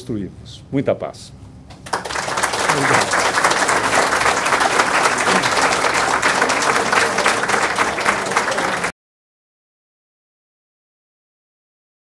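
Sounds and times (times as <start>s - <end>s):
audience applauding: 1.7s - 8.9s.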